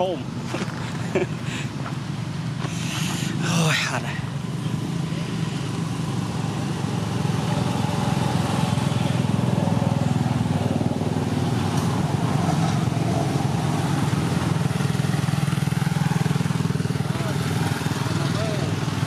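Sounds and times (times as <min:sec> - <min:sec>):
small engine running: 0:00.4 - 0:19.0.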